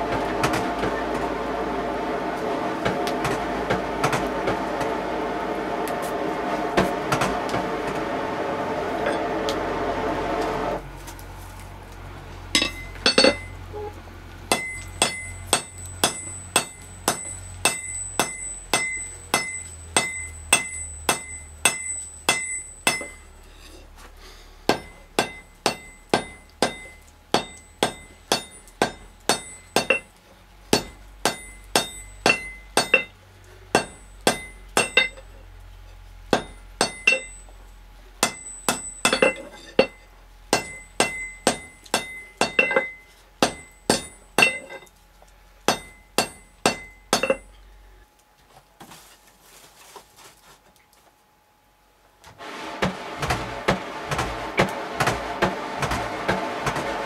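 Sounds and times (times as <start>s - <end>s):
high metallic ring: 12.5s - 13.9s, 14.5s - 23.8s, 24.7s - 30.1s, 30.8s - 33.2s, 33.8s - 35.3s, 36.4s - 37.6s, 38.2s - 44.9s, 45.7s - 47.6s
hammer blows on anvil: 14.5s - 23.4s, 45.7s - 47.5s.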